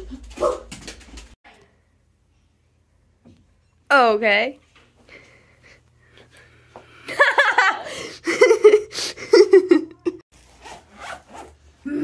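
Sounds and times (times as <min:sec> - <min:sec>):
children laughing: 0:07.1 - 0:10.2.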